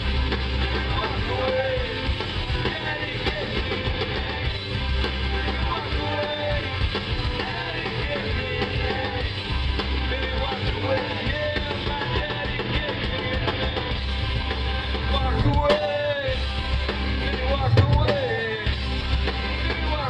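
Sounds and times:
live rock band: 0:00.0 - 0:20.0
person singing: 0:00.8 - 0:04.6, 0:05.2 - 0:09.3, 0:10.0 - 0:13.9.

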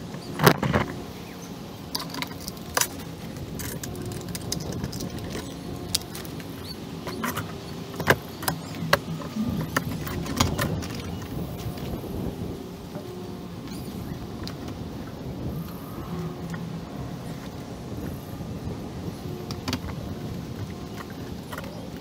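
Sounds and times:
sharp clicks and knocks: 0:01.9 - 0:12.0.

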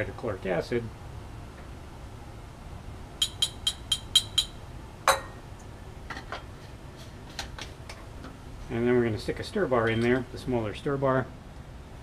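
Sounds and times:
glass clinking: 0:03.2 - 0:05.4.

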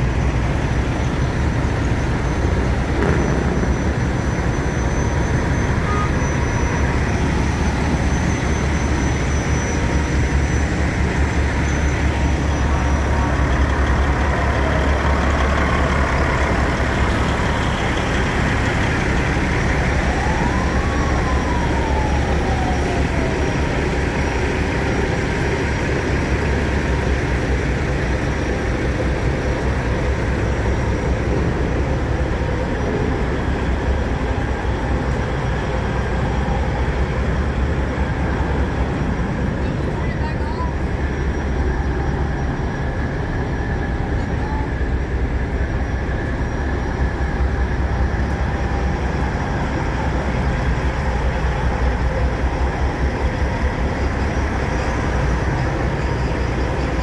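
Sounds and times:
diesel trucks idling: 0:00.0 - 0:57.0
siren-like wail: 0:00.0 - 0:57.0.

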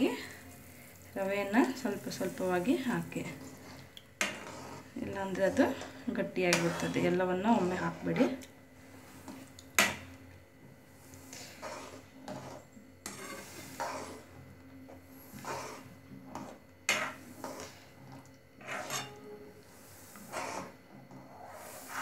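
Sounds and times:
metal ladle scraping a pan: 0:02.0 - 0:08.4, 0:11.0 - 0:14.4, 0:15.1 - 0:22.0.

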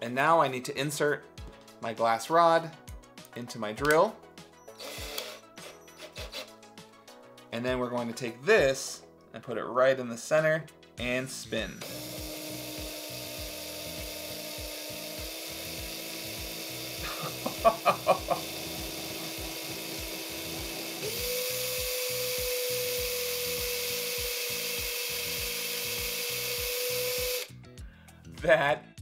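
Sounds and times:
cordless drill motor whining: 0:04.6 - 0:06.6, 0:11.6 - 0:27.5.

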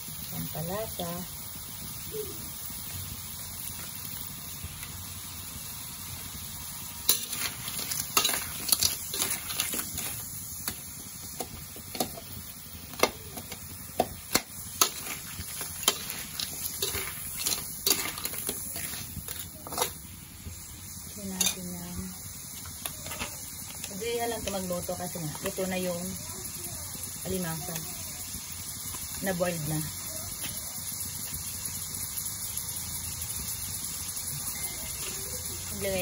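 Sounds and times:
frying sizzle: 0:00.0 - 0:36.0
spatula scraping metal wok: 0:07.1 - 0:10.8, 0:13.0 - 0:20.1.

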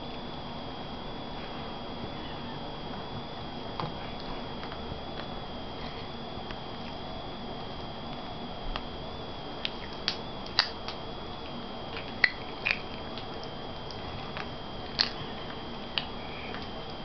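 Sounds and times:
faint high whine: 0:00.0 - 0:17.0
popping candy crackling in mouth: 0:09.6 - 0:11.0, 0:11.9 - 0:16.7.

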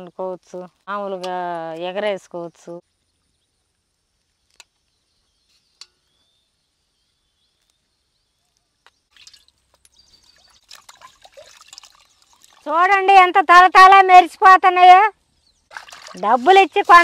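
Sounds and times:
water sloshing in a metal pot: 0:09.1 - 0:12.8, 0:15.7 - 0:17.0.

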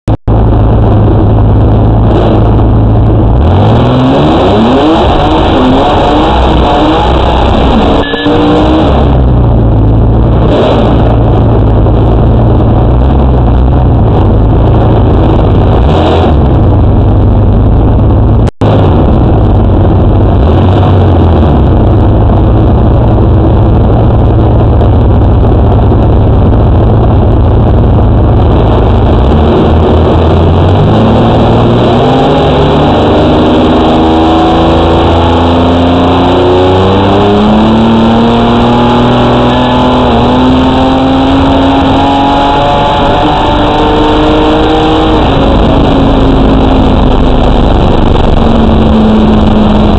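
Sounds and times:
loud car engine revving: 0:00.0 - 0:49.9
car engine idling: 0:00.2 - 0:31.8, 0:44.5 - 0:49.9.

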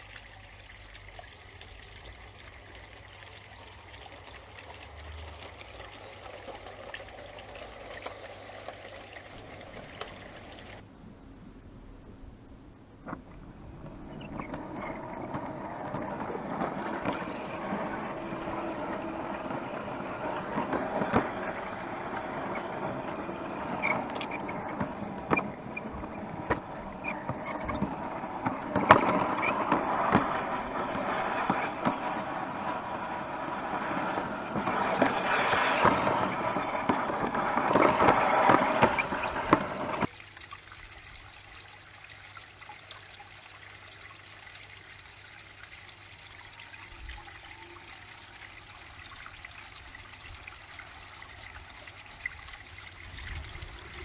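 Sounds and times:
outdoor background: 0:00.0 - 0:54.0
wheels clicking on track: 0:01.0 - 0:10.8, 0:13.0 - 0:40.1, 0:46.3 - 0:54.0
model train rolling rattle: 0:02.2 - 0:10.8, 0:13.1 - 0:40.1, 0:52.4 - 0:54.0.

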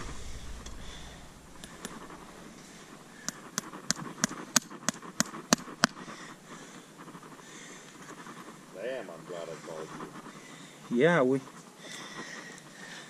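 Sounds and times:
hammer striking horseshoe nail: 0:03.2 - 0:06.0.

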